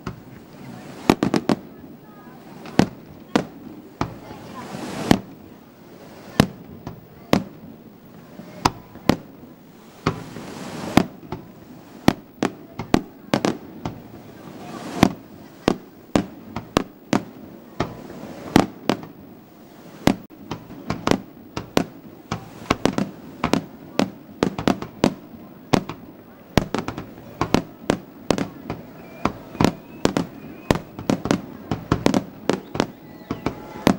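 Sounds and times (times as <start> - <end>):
firework shells banging: 25.8 - 33.9.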